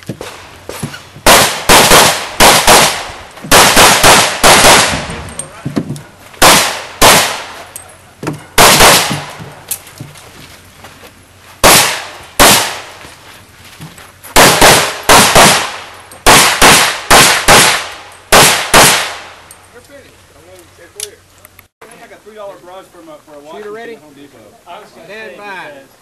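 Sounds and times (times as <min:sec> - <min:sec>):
pistol shots with echo: 0:01.3 - 0:05.2, 0:06.4 - 0:07.7, 0:08.6 - 0:09.4, 0:11.6 - 0:12.9, 0:14.4 - 0:19.4.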